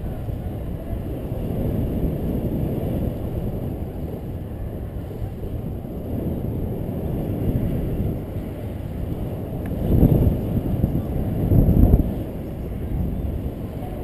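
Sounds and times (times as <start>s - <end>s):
wind rushing over microphone: 0.0s - 14.0s.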